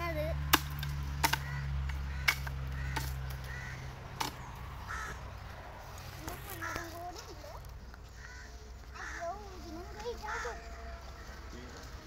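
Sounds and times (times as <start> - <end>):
machete striking bamboo: 0.5 - 3.5, 4.1 - 4.4.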